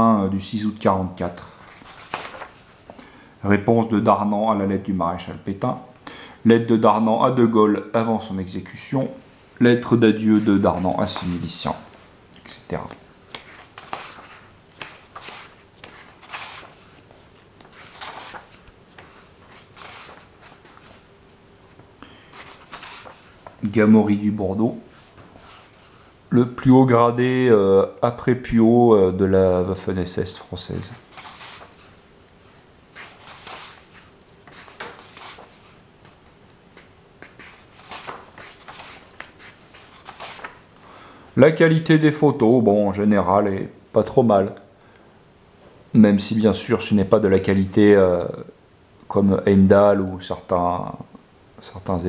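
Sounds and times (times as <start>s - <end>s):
book pages turning: 1.6s - 3.0s, 10.2s - 21.1s, 21.8s - 24.0s, 24.9s - 26.1s, 30.6s - 40.8s.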